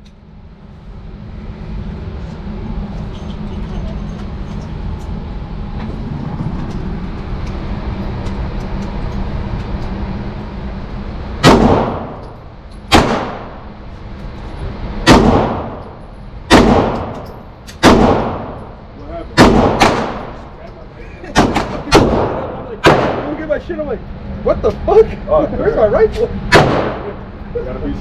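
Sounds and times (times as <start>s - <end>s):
steady low rumble: 0.0s - 28.0s
echoing gunshots: 11.4s - 12.3s, 12.9s - 13.7s, 15.0s - 15.9s, 16.5s - 17.2s, 17.8s - 18.8s, 19.4s - 20.5s, 21.3s - 23.5s, 26.5s - 27.2s.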